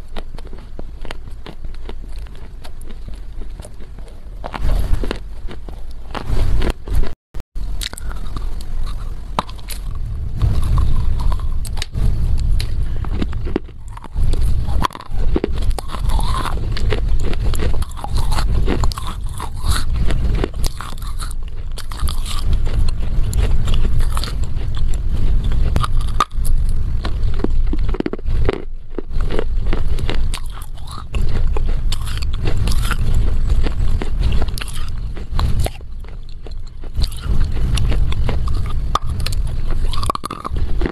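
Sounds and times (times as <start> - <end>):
microphone handling rumble: 3.1 - 20.7, 22.4 - 30.3
crunching dry clay: 7.8 - 40.9.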